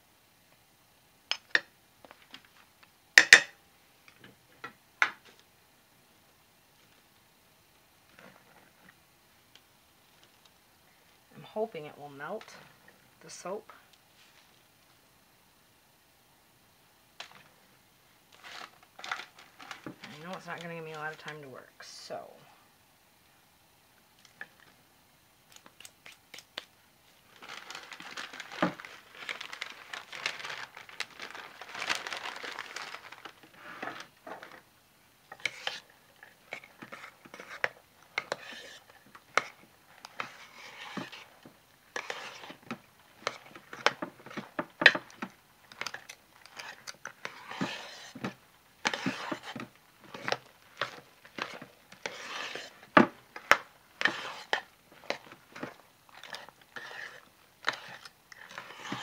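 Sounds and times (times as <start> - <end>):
spatula scraping soap in pot: 35.3 - 55.3, 56.1 - 59.0.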